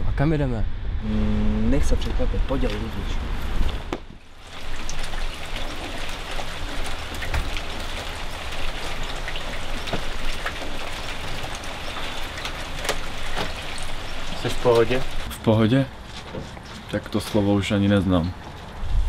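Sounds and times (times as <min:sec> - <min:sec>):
steady rain hiss: 0:01.1 - 0:16.1.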